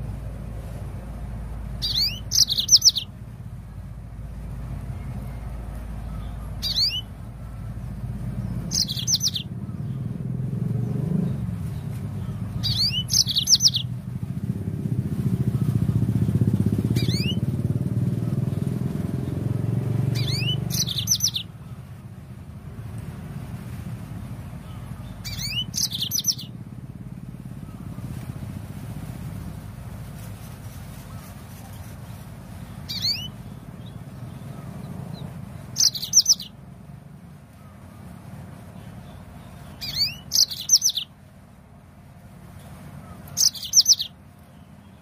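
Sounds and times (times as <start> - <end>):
low vehicle rumble: 0.0 - 45.0
canary singing: 1.6 - 3.2, 4.7 - 10.4, 11.2 - 14.0, 16.5 - 17.6, 19.0 - 21.8, 24.6 - 26.6, 32.6 - 36.6, 38.8 - 41.2, 43.0 - 45.0.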